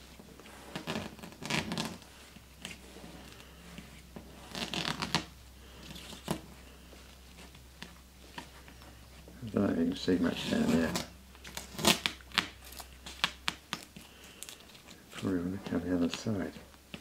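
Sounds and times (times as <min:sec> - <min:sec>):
loose tape rustling: 0:00.0 - 0:17.0
tape ripping off a board: 0:04.4 - 0:05.3, 0:10.5 - 0:14.6.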